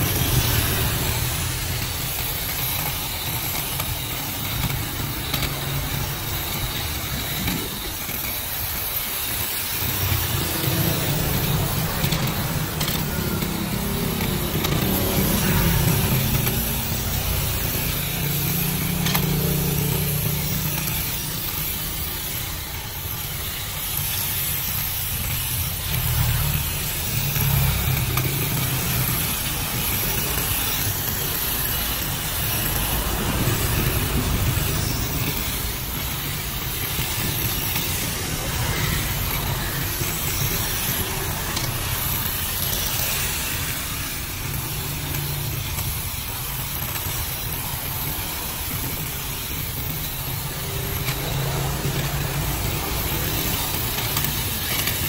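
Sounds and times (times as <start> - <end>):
cordless shrub shear buzzing: 0.0 - 55.0.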